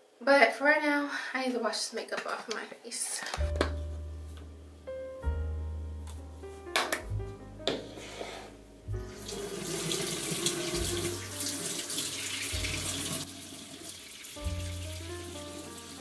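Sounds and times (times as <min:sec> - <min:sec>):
background music with bass line: 0:03.4 - 0:09.4, 0:10.5 - 0:11.6, 0:14.4 - 0:16.0
faucet water running into sink: 0:09.0 - 0:16.0.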